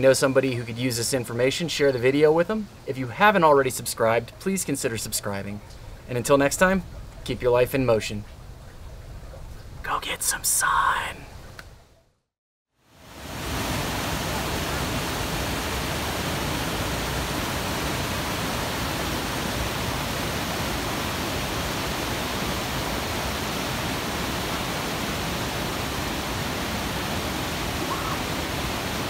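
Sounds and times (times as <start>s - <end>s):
waterfall rushing over boulders: 12.9s - 29.0s.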